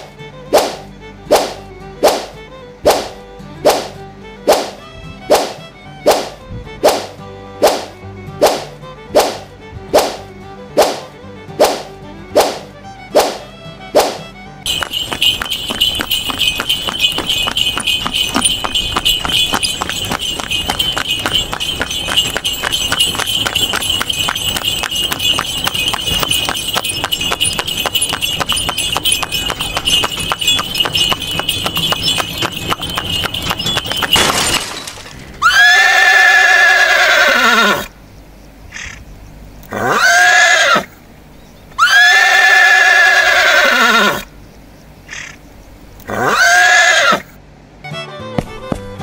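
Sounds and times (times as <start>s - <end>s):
fast clattering rhythm with ringing: 14.7s - 35.0s
horse whinnying: 35.4s - 37.9s, 39.7s - 41.0s, 41.8s - 44.3s, 46.0s - 47.3s.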